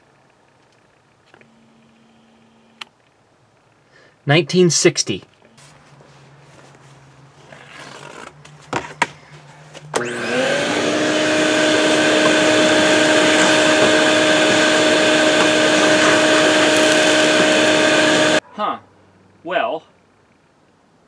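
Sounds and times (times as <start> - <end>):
vacuum cleaner motor whine: 9.8 - 18.4.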